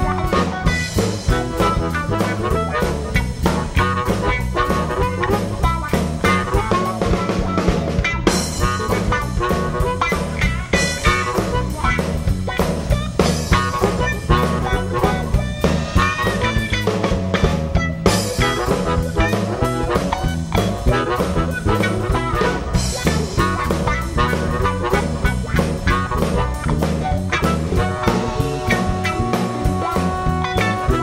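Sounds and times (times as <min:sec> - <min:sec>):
bass guitar: 0:00.0 - 0:31.0
drum kit beat: 0:00.0 - 0:31.0
electric guitar: 0:00.0 - 0:31.0.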